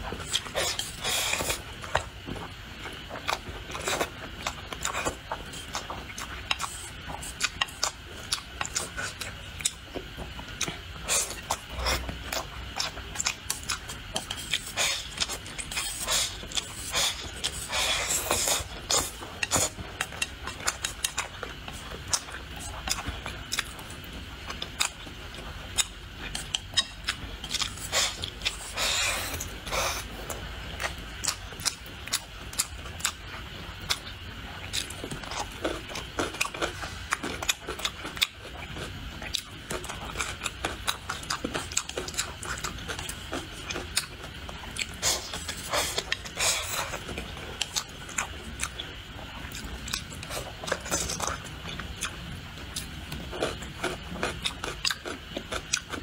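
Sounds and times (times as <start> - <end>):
chewing crisp food: 0.0 - 56.0
slurping: 10.6 - 21.4.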